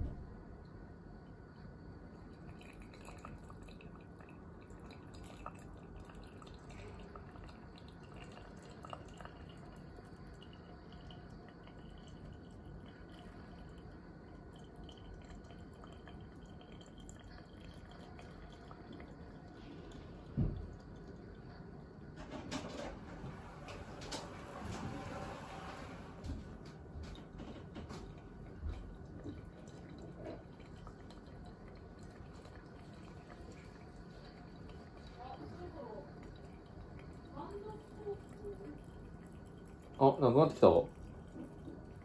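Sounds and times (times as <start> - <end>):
soft thump: 0.0 - 0.3, 20.4 - 20.7
coffee dripping into glass: 0.0 - 22.1, 26.6 - 42.0
water pouring from a kettle: 1.7 - 42.0.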